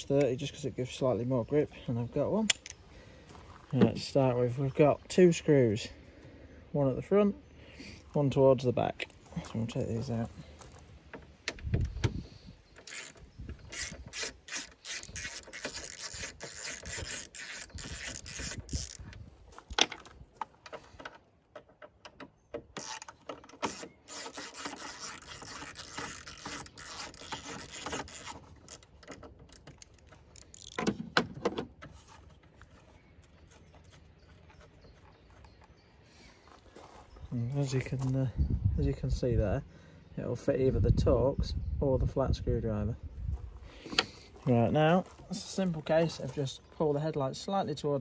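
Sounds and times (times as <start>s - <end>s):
ratchet driver clicking: 12.8s - 19.2s.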